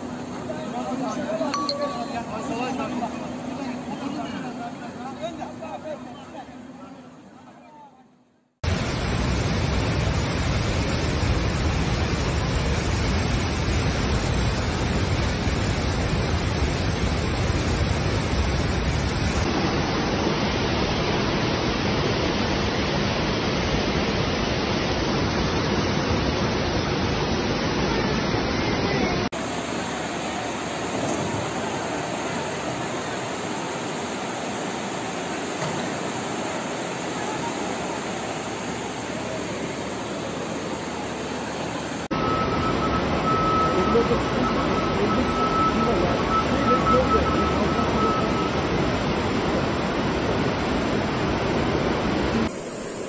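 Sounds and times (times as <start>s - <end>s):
floodwater rushing: 8.6s - 53.0s.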